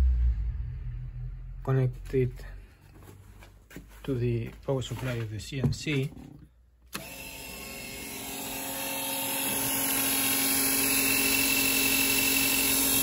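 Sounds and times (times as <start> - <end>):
electric motor humming and whining: 6.9 - 13.0.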